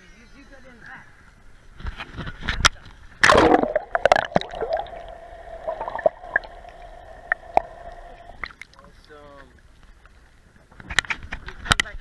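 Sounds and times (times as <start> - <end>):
loud splash: 3.2 - 8.5
muffled underwater gurgling: 3.2 - 8.5
steady hum: 3.2 - 8.6.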